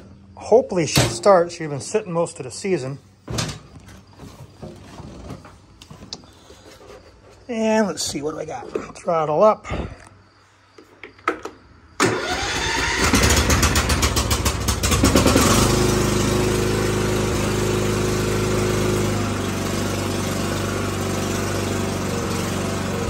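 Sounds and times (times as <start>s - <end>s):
electric starter cranking: 12.0s - 23.0s
lawn mower engine running: 12.0s - 23.0s.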